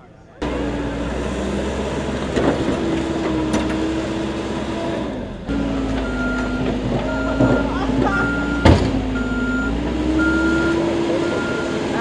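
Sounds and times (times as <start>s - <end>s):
diesel engine running: 0.4s - 12.0s
engine running: 0.4s - 12.0s
reversing beeper: 6.0s - 12.0s.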